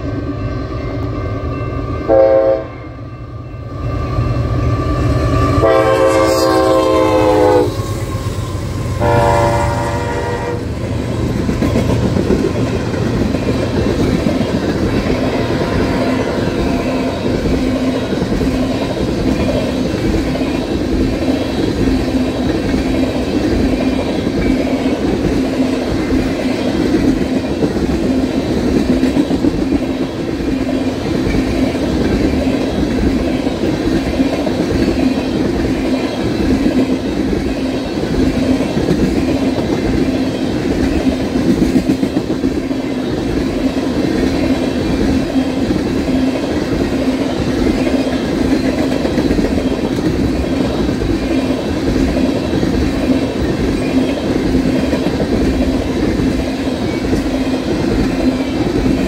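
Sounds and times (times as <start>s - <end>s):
locomotive horn blasts: 2.1s - 2.8s, 5.6s - 7.8s, 9.0s - 10.7s
train wheels clickety-clack: 4.3s - 59.0s.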